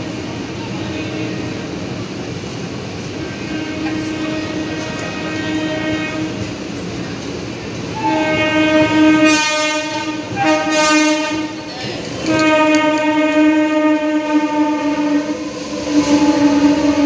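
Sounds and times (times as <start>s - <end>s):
train coaches rumbling past: 0.0s - 17.0s
locomotive horn blasts: 3.2s - 6.5s, 7.9s - 17.0s.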